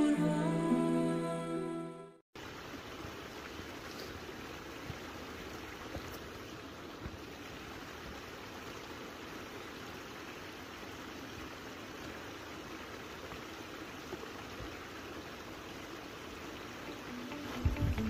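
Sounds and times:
stream trickling over stones: 0:02.4 - 0:18.0.

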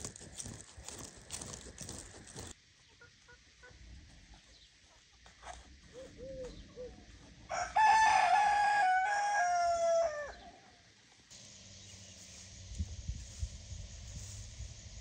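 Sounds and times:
rooster crowing: 0:07.4 - 0:10.6.

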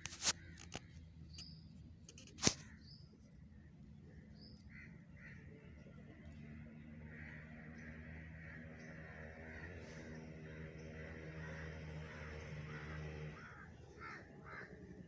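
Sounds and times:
crows cawing: 0:04.7 - 0:05.6, 0:07.0 - 0:15.0.

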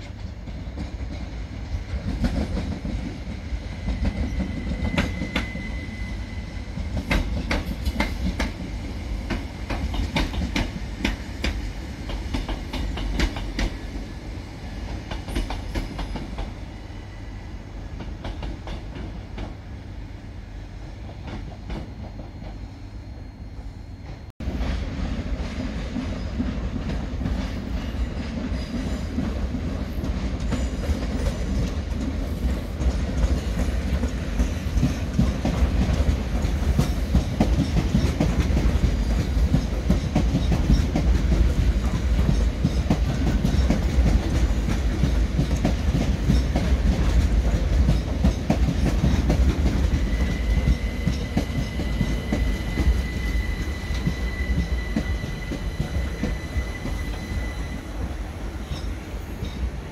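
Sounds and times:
electric train rumbling: 0:00.0 - 0:59.9
thin high squeal: 0:50.2 - 0:58.0.

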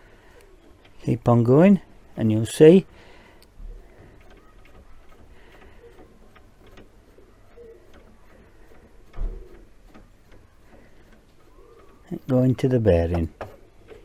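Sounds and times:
lead screw ticking and clicking: 0:03.4 - 0:14.0.

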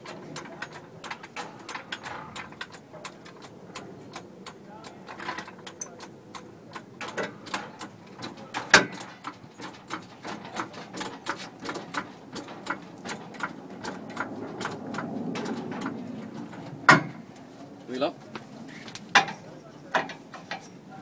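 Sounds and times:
jack pumping clicks: 0:00.0 - 0:17.5
metallic knock: 0:07.0 - 0:17.2.

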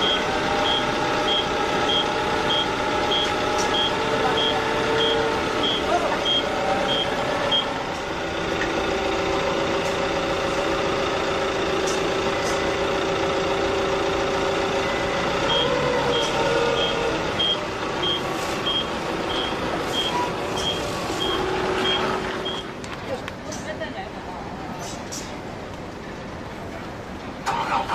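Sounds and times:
reversing warning beeper: 0:00.0 - 0:07.7, 0:15.4 - 0:22.7
forklift engine running: 0:00.0 - 0:23.4, 0:25.4 - 0:27.9.

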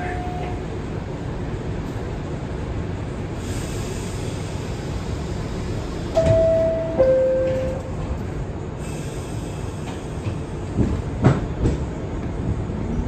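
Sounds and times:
subway car rumble: 0:00.0 - 0:13.0
two-tone descending door chime: 0:06.2 - 0:07.8.

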